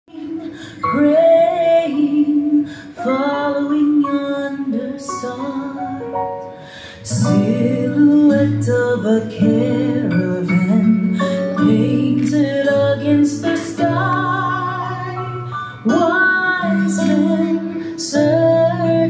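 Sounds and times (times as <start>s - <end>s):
christmas song melody: 4.0s - 19.0s.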